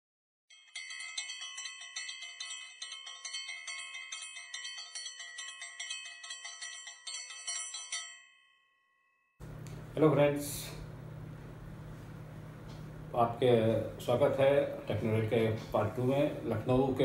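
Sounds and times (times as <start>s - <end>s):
bell-like chimes music: 0.5s - 9.4s.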